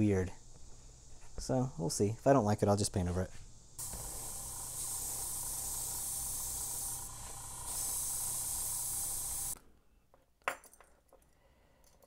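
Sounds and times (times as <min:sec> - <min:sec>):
airbrush spraying hiss: 0:03.4 - 0:09.6.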